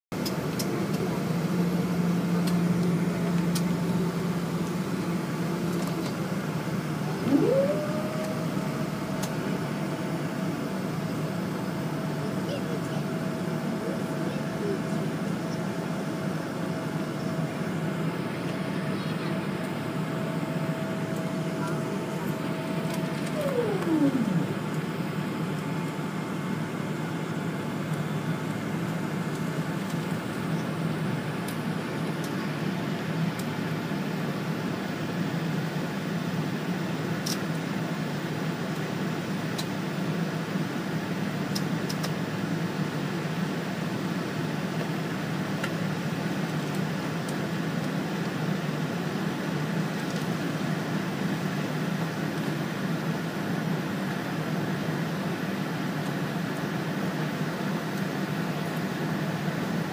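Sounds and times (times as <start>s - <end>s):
air-conditioning airflow: 0.1s - 59.9s
aircraft engines idling: 0.2s - 40.7s
steady whine dropping in pitch: 6.8s - 10.6s, 20.0s - 25.6s.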